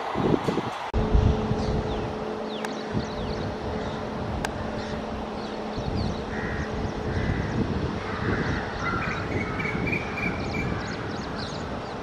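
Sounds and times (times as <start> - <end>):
crow-like caws: 6.3 - 11.5.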